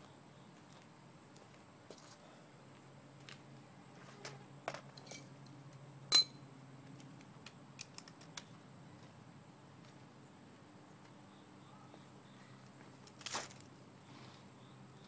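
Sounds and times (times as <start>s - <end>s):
ringing metal clink: 6.1s - 6.4s.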